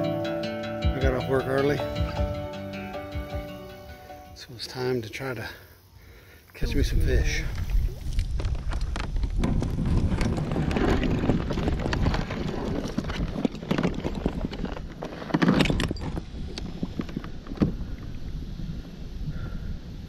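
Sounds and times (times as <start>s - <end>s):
wind buffeting microphone: 6.6s - 20.0s
gear clunking and rattling: 8.3s - 18.1s.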